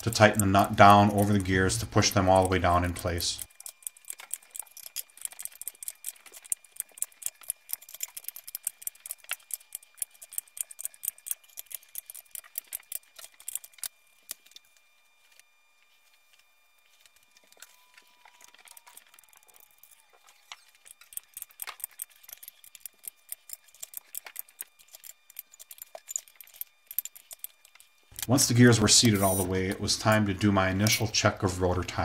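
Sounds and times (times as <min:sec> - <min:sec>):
ratchet wrench clicking: 0:00.0 - 0:13.9, 0:20.6 - 0:29.4.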